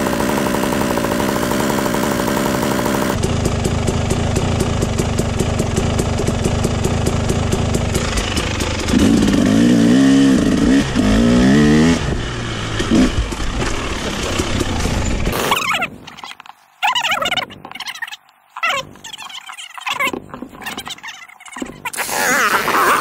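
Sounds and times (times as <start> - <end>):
dirt bike engine revving: 0.0 - 16.0, 21.8 - 23.0.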